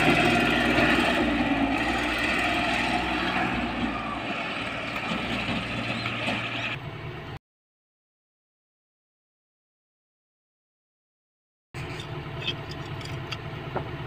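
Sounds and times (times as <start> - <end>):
diesel engine running: 0.0 - 7.4, 11.8 - 14.0.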